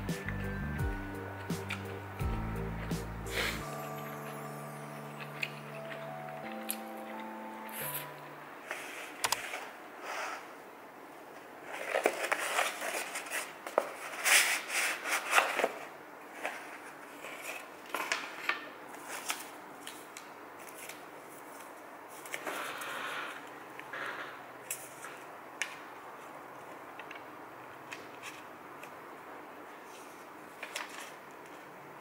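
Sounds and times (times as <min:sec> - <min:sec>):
paper packets rustling: 0:11.6 - 0:22.6, 0:29.8 - 0:31.8.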